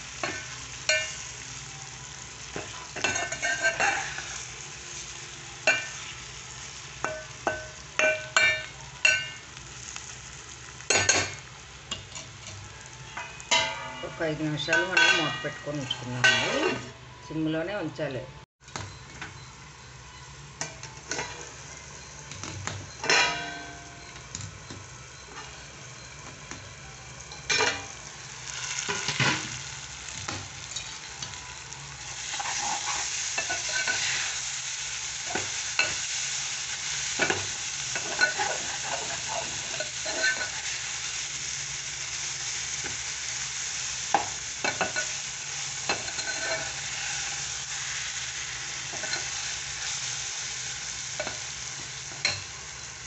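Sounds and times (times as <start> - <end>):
vegetables sizzling in oil: 0.0 - 17.9, 18.6 - 53.0
steel spoon scraping a pan: 0.2 - 1.4, 2.5 - 6.2, 10.8 - 17.0, 25.2 - 26.2, 27.2 - 29.8, 30.5 - 41.3, 42.4 - 52.9.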